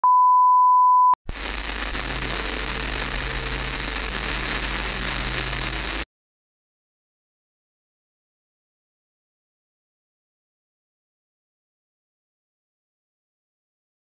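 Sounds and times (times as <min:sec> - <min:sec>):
television static hiss: 0:01.3 - 0:06.0.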